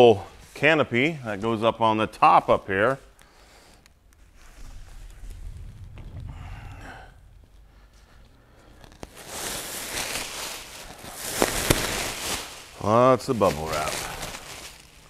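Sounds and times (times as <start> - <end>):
bubble wrap rustling: 3.1 - 15.0
faint low rumble: 3.9 - 11.2.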